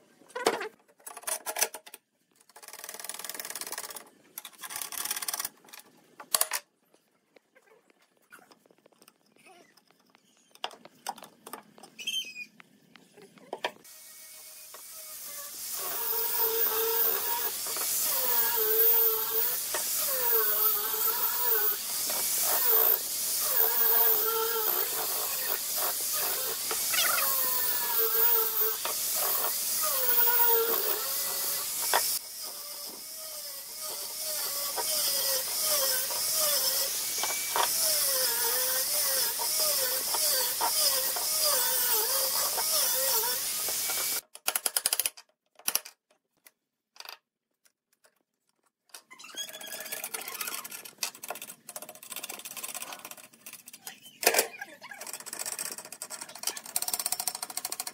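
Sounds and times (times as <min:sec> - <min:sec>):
angle grinder sanding wood: 0:13.8 - 0:44.2.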